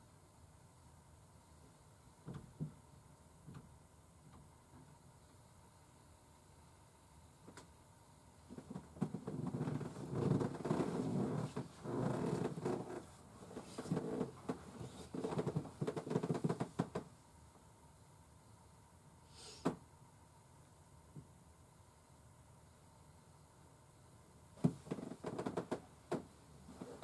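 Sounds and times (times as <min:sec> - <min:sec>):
bedding rustling: 0:08.6 - 0:17.0, 0:24.6 - 0:27.0.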